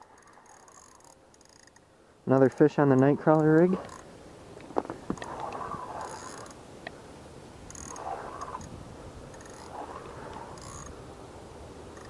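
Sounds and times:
fishing reel whirring: 0.0s - 1.8s, 3.3s - 4.1s, 5.2s - 6.6s, 7.7s - 8.7s, 9.3s - 11.0s.

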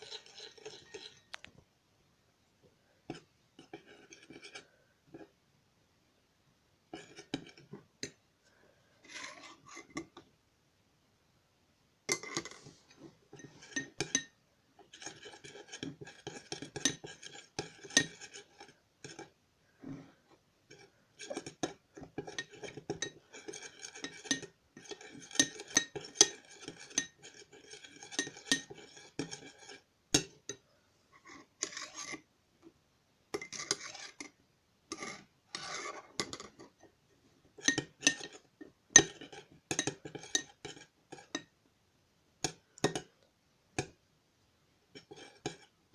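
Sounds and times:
metal spoon scraping glass bowl: 0.0s - 1.4s, 3.1s - 5.3s, 7.0s - 8.1s, 9.0s - 10.2s, 12.1s - 19.4s, 20.7s - 30.6s, 31.2s - 32.3s, 33.3s - 36.9s, 37.5s - 41.5s, 45.0s - 45.8s.

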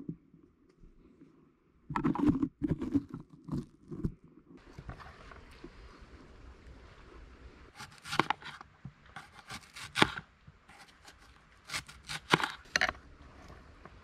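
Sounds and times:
knife slicing onion: 7.8s - 8.6s, 9.2s - 12.8s.

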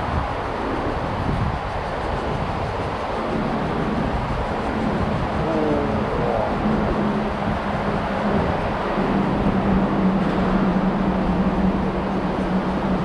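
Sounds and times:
low steady drone: 0.0s - 13.0s
road traffic noise: 3.0s - 13.0s.

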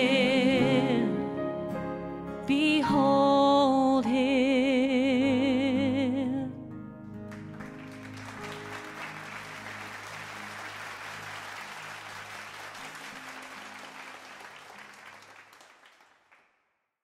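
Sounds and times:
congregation applauding: 7.2s - 16.7s.

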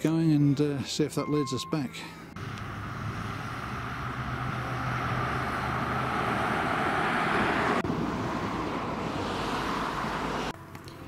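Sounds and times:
tyres rushing on road: 2.3s - 10.8s.

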